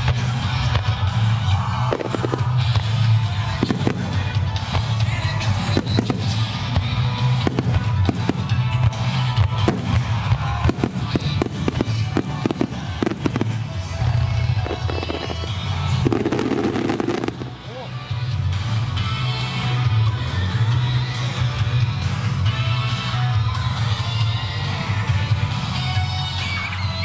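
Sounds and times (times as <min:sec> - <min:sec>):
fireworks bursting with sharp bangs: 0:00.0 - 0:17.7
music playing: 0:00.0 - 0:27.0.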